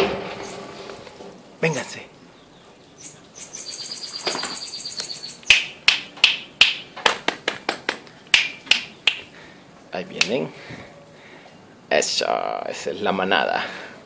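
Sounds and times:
finger snaps: 5.0s - 9.3s.

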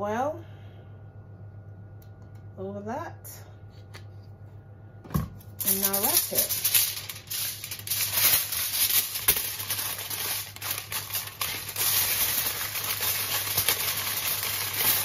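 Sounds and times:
aluminium foil crinkling: 5.5s - 15.0s.

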